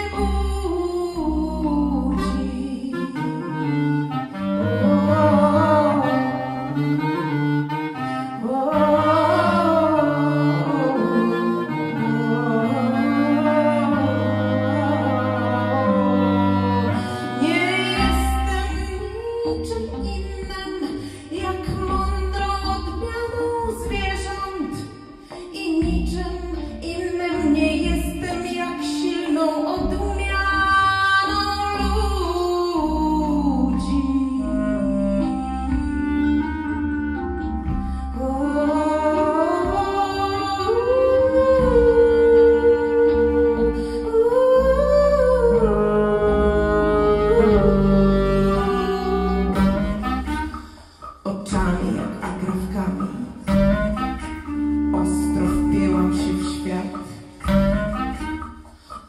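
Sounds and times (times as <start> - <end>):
clarinet playing: 0.0 - 59.0
deep pulsing bass beat: 25.8 - 28.4, 45.5 - 50.6, 51.5 - 58.7.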